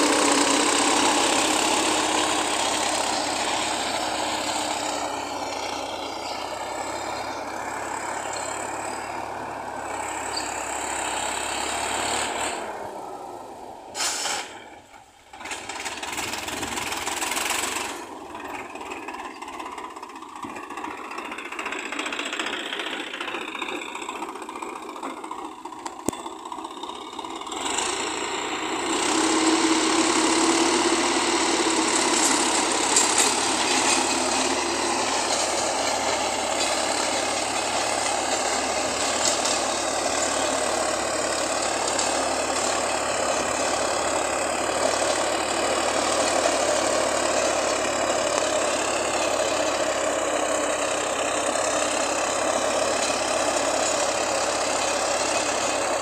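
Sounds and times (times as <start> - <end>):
rotavator churning grass and soil: 0.0 - 12.8, 15.4 - 21.2, 27.5 - 56.0
tractor diesel engine under load: 0.0 - 56.0.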